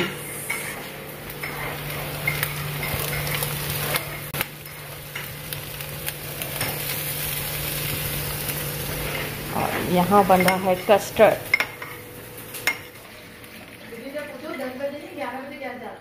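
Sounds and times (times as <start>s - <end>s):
steady low hum: 0.0s - 13.7s
vegetables sizzling in a wok: 0.0s - 15.8s.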